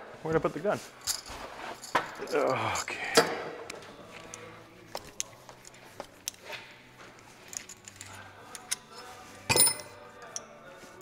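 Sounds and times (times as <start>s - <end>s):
small metal clicks and clinks: 7.5s - 10.5s.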